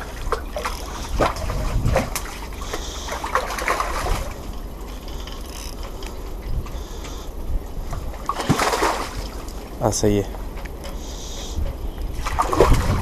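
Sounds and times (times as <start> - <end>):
fish thrashing water splashing: 0.0 - 4.6, 8.2 - 9.6, 12.2 - 13.0.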